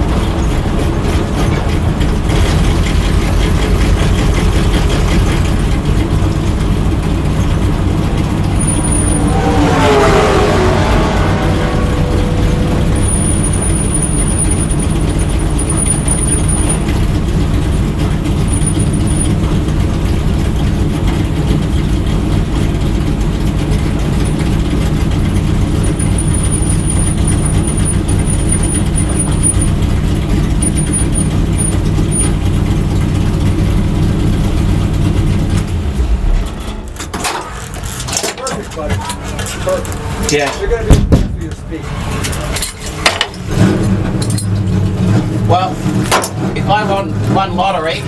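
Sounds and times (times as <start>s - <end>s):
car engine idling at low revs: 0.0s - 9.4s, 11.5s - 36.2s.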